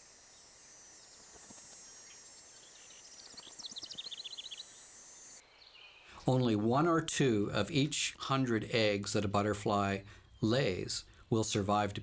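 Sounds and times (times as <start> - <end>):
high-pitched insect drone: 0.0 - 5.4.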